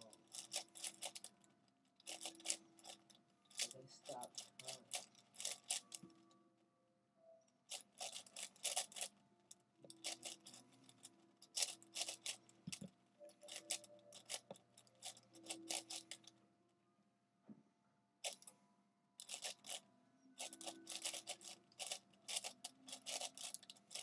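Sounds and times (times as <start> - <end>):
puzzle cube clicking: 0.0 - 1.3, 2.0 - 6.0, 7.7 - 9.1, 9.9 - 16.3, 19.2 - 19.8, 20.4 - 24.0.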